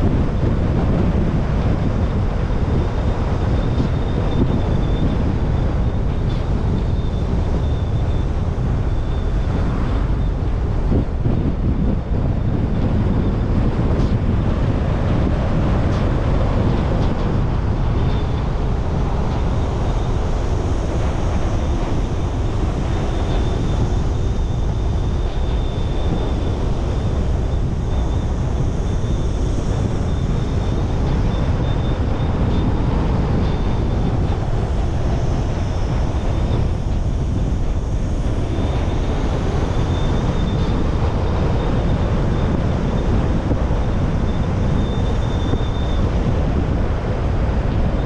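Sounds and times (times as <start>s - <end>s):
road and tyre rumble: 0.0s - 48.0s
wind buffeting microphone: 0.0s - 48.0s.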